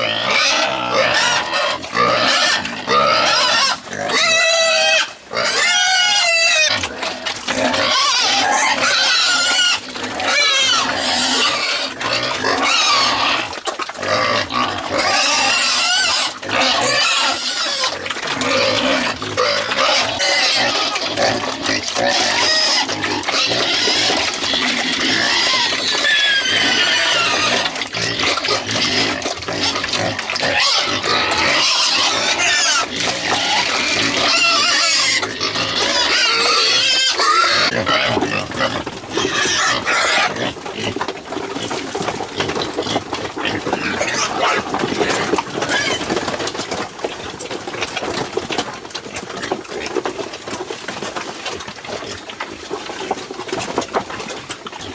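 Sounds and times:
pigs squealing loudly: 0.0s - 48.4s.

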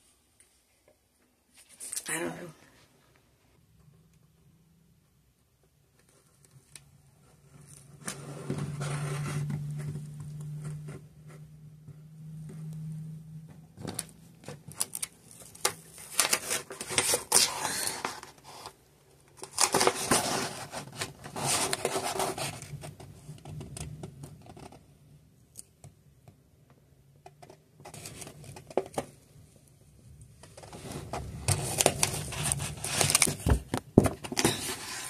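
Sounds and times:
wallpaper rustling and scraping: 6.2s - 11.0s, 19.4s - 22.9s, 30.6s - 35.0s.

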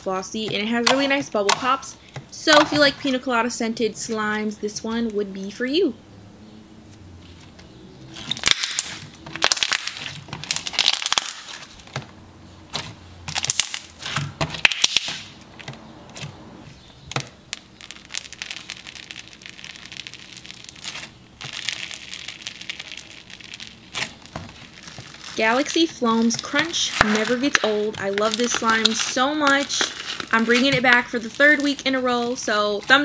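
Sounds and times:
foam bead slime crunching: 8.2s - 11.8s, 12.7s - 15.4s, 17.4s - 33.0s
slime squishing with bubble pops: 8.2s - 12.0s, 12.7s - 16.4s, 17.0s - 33.0s.

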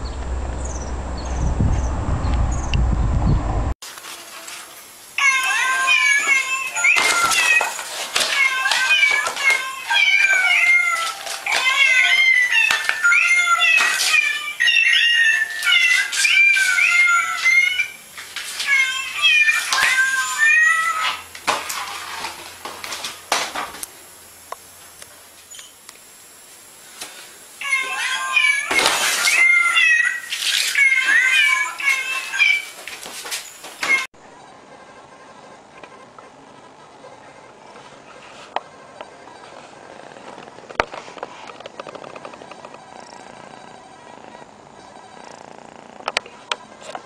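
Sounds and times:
cat meowing: 5.2s - 18.0s, 18.6s - 21.3s, 27.6s - 32.8s.

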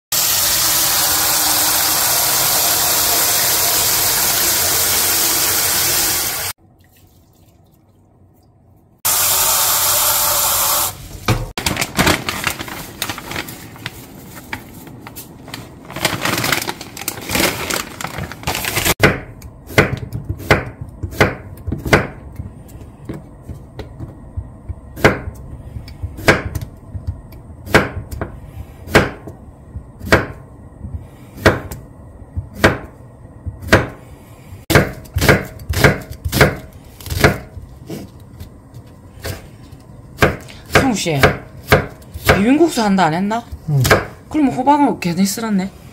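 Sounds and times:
tap water gushing into a pan: 0.2s - 8.0s
packet rustling and crinkling: 11.6s - 19.0s.

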